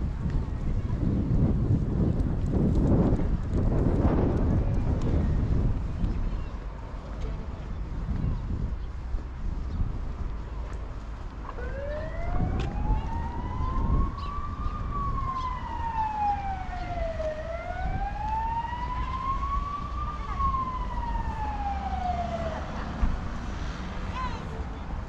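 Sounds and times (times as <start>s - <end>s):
street traffic rumble: 0.0s - 25.0s
emergency siren wailing: 11.5s - 23.4s.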